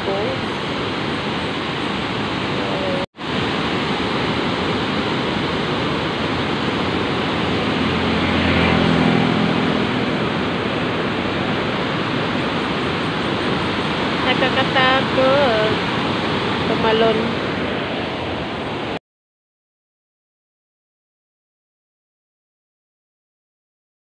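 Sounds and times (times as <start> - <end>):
river rushing: 0.0 - 19.0
waterfall roaring: 0.0 - 19.0.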